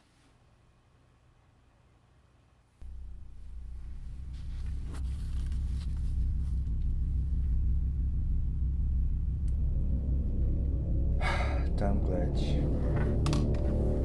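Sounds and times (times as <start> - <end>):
deep rumbling drone: 2.8 - 14.0.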